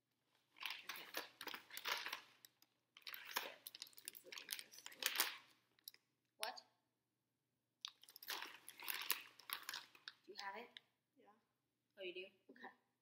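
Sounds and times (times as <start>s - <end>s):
plastic packaging crinkling: 0.5s - 5.5s, 7.9s - 10.5s.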